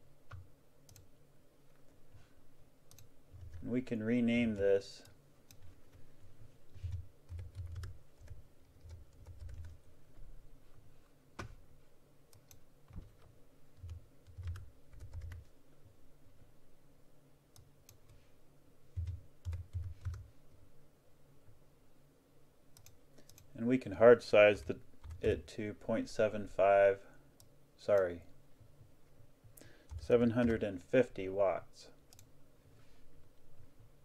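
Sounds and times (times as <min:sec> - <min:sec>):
typing on computer keyboard: 0:06.9 - 0:09.8, 0:13.8 - 0:15.5, 0:19.0 - 0:20.3, 0:29.9 - 0:30.6.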